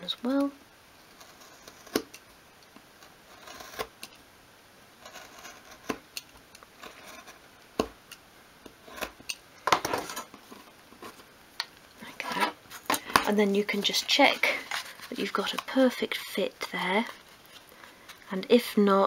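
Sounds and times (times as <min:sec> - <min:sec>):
craft knife scoring wood: 0:01.2 - 0:02.2, 0:03.0 - 0:04.2, 0:05.0 - 0:09.4.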